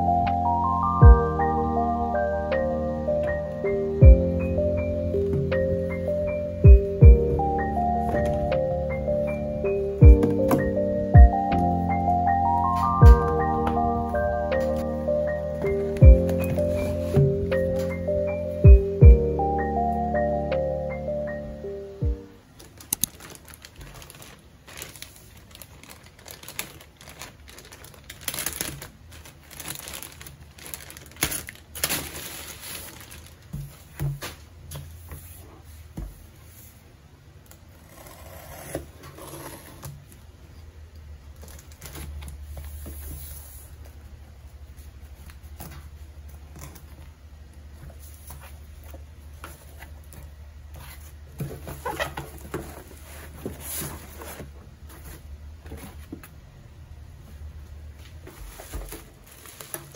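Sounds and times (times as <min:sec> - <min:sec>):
bubble wrap crinkling: 0:22.5 - 0:34.0, 0:50.8 - 0:55.3, 0:58.2 - 0:59.9
plastic mailer crinkling: 0:22.5 - 0:34.0, 0:58.4 - 0:59.9.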